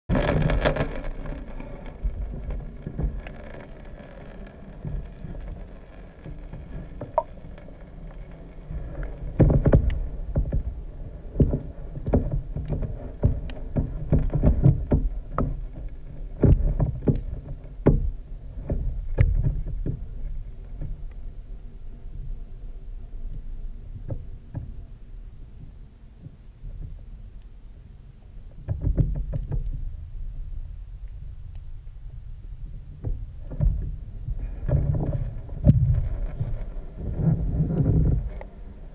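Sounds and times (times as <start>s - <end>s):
underwater knocks and clicks: 0.1s - 21.2s, 23.9s - 24.8s, 25.6s - 27.1s, 28.6s - 29.9s, 33.0s - 38.5s
muffled underwater water rumble: 0.1s - 38.9s.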